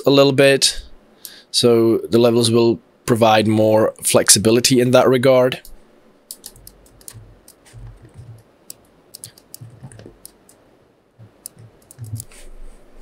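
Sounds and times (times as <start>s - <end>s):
keyboard and mouse clicks: 5.6s - 10.6s, 11.2s - 12.3s.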